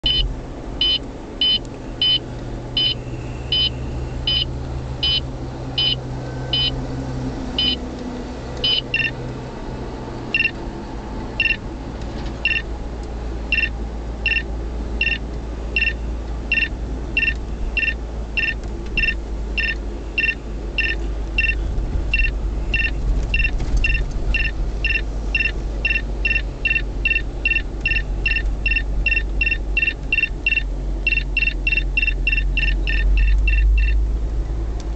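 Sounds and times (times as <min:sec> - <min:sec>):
short high beeps: 0:00.0 - 0:02.2, 0:02.8 - 0:06.8, 0:07.6 - 0:07.8, 0:08.6 - 0:09.2, 0:10.4 - 0:10.6, 0:11.4 - 0:11.6, 0:12.4 - 0:12.6, 0:13.5 - 0:15.2, 0:15.8 - 0:34.0
low hum of car driving: 0:00.0 - 0:34.9.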